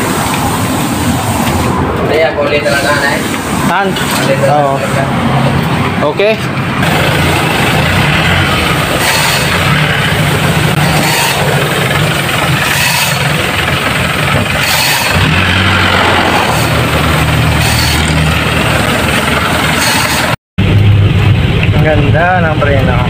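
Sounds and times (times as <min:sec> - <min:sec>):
pickup engine idling: 0:06.5 - 0:20.8.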